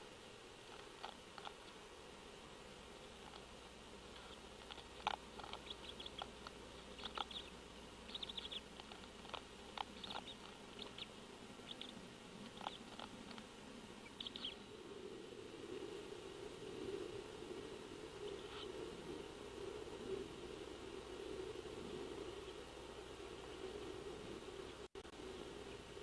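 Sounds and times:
owl chewing eggshell clicks: 0:00.7 - 0:01.7, 0:04.1 - 0:11.1, 0:11.7 - 0:13.5.

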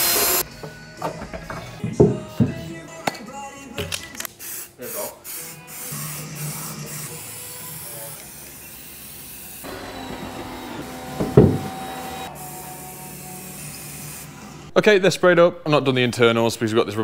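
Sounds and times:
aerosol spray paint hissing: 0:04.4 - 0:09.6
knock: 0:11.2 - 0:11.7.

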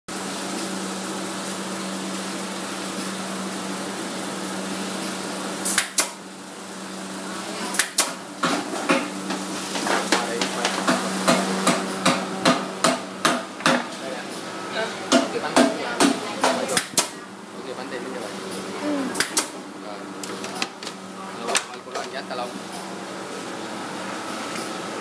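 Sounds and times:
sharp knocks: 0:09.8 - 0:13.9.

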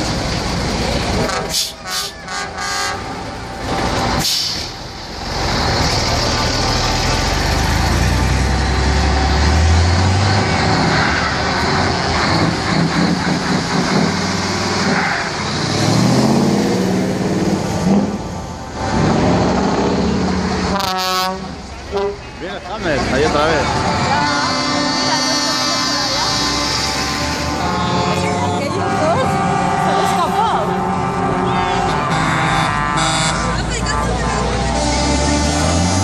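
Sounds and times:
diesel trucks revving: 0:00.0 - 0:36.0
air brake hiss: 0:04.2 - 0:04.8.

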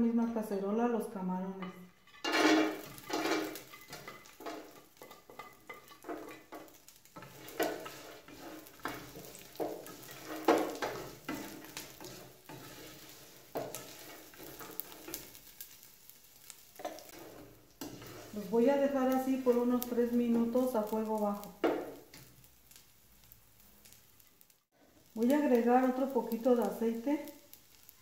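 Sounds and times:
wooden spoon scraping pot: 0:01.6 - 0:15.9, 0:16.8 - 0:22.3
shrimp sizzling in oil: 0:01.9 - 0:28.0.

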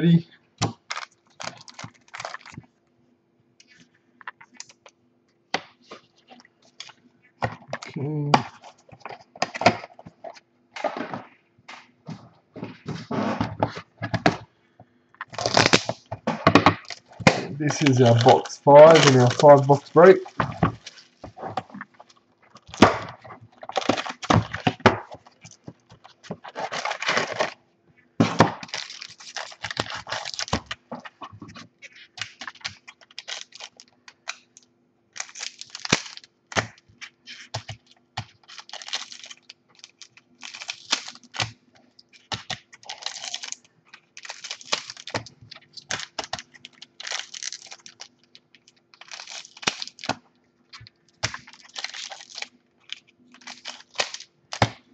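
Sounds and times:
foil wrappers crinkling: 0:00.6 - 0:02.8, 0:05.8 - 0:11.4, 0:15.2 - 0:27.6, 0:28.3 - 0:54.9.

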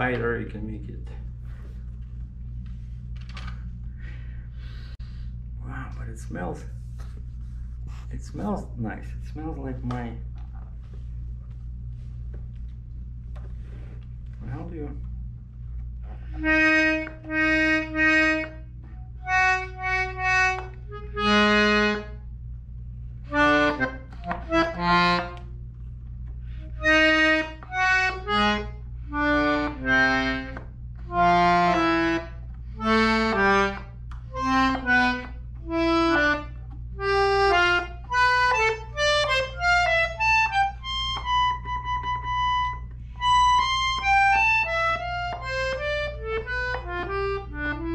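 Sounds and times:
button accordion notes and chords: 0:16.2 - 0:22.4, 0:23.2 - 0:25.6, 0:26.6 - 0:47.9.

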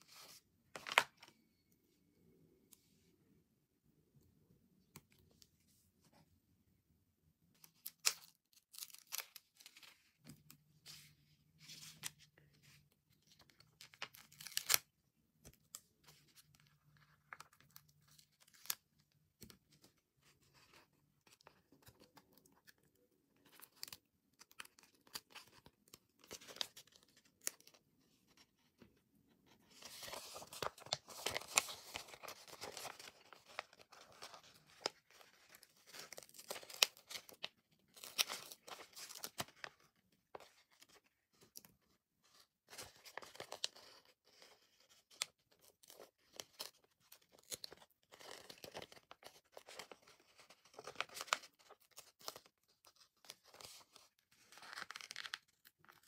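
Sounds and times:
paper rustling: 0:29.5 - 0:41.5, 0:42.3 - 0:56.0.

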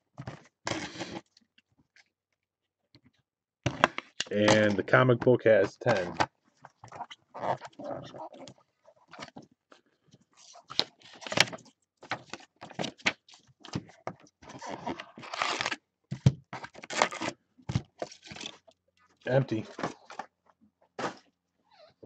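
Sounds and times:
paper rustling and crinkling: 0:10.2 - 0:15.8
paper packaging tearing: 0:14.5 - 0:15.8, 0:16.6 - 0:17.4.

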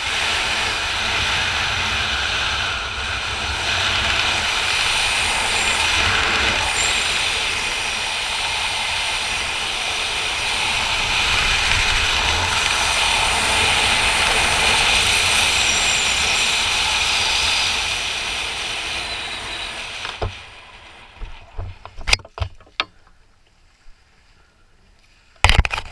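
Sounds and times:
wind rushing over microphone: 0:00.0 - 0:22.2
knocks and rustles: 0:21.2 - 0:23.2.

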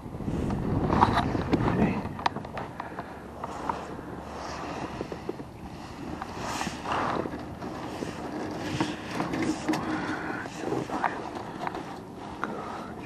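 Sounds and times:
landing net mesh rustling: 0:03.4 - 0:13.0.

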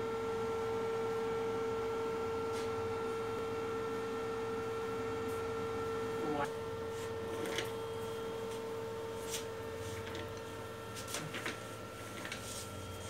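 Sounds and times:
steady mid-pitched hum: 0:02.9 - 0:11.0.

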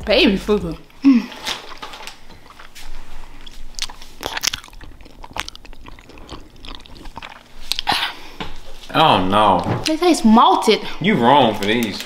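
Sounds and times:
gummy candy being chewed: 0:01.3 - 0:08.1
wet mouth clicks: 0:03.4 - 0:08.2.

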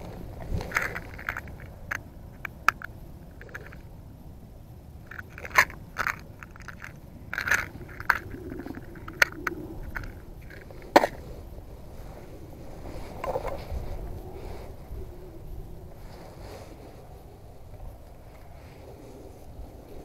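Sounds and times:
low steady background noise: 0:00.0 - 0:20.0
plastic container clicking and rattling: 0:05.1 - 0:11.2.

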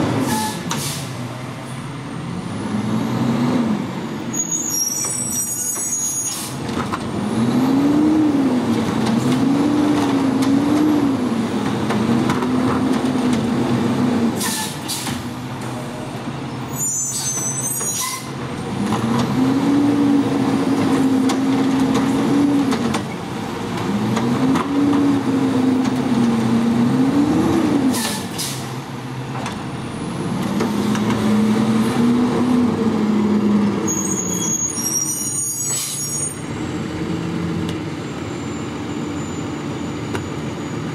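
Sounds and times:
diesel engine revving: 0:00.0 - 0:04.8, 0:06.4 - 0:16.9, 0:18.2 - 0:40.9
air brake hisses: 0:00.3 - 0:01.2, 0:14.4 - 0:15.2, 0:28.0 - 0:28.7.

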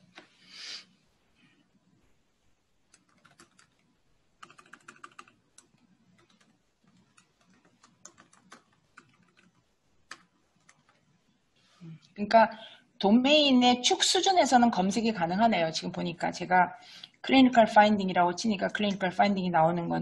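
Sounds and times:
typing on computer keyboard: 0:02.9 - 0:11.0.

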